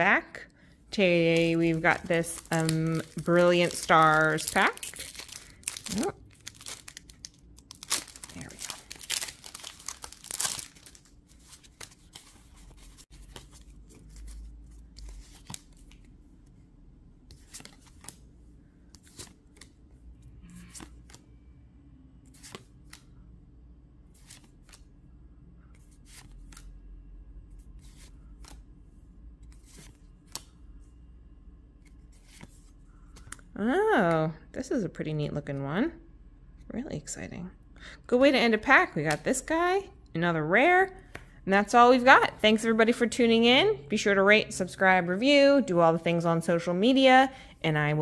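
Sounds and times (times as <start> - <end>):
plastic wrapper tearing: 1.3 - 11.2
cards sliding and flipping: 22.2 - 23.0, 24.1 - 24.8, 25.7 - 26.7.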